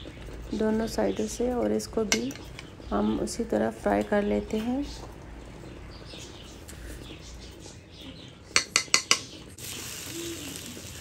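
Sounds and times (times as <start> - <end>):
fork clinking ceramic bowl: 8.6 - 9.3
bread sizzling in frying pan: 9.6 - 11.0.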